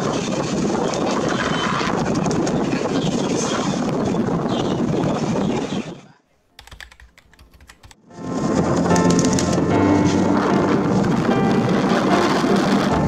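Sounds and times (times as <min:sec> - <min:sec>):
distant aircraft engines roaring: 0:08.2 - 0:13.0.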